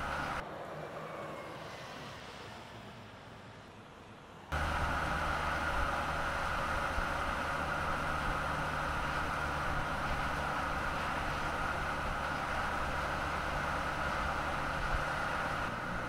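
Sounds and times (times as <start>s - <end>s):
low road hum: 0.0s - 16.0s
tyres rolling on asphalt: 0.0s - 16.0s.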